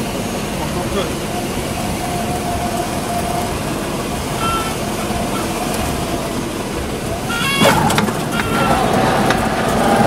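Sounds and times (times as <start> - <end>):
propeller plane engine running: 0.0 - 10.0.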